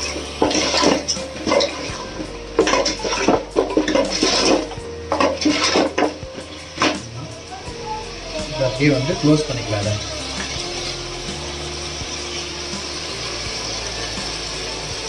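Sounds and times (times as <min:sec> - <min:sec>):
metal spoon scraping in pot: 0:00.0 - 0:07.2.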